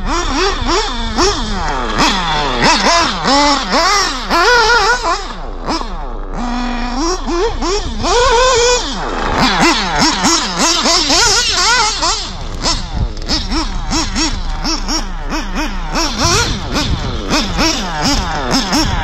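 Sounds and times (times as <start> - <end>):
small engine revving: 0.0 - 19.0.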